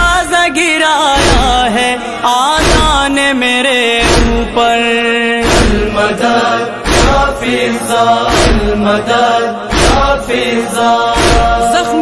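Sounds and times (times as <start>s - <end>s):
person reciting: 0.0s - 12.0s
deep rhythmic thump: 1.1s - 2.0s, 2.6s - 3.3s, 3.9s - 4.8s, 5.4s - 11.9s
chorus chanting: 1.1s - 12.0s.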